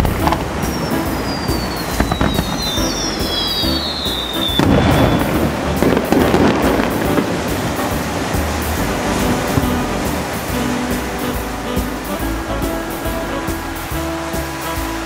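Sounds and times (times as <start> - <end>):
firework pops: 0.0 - 11.9
firework booms and crackle: 0.0 - 13.0
firework whistles: 0.0 - 15.0.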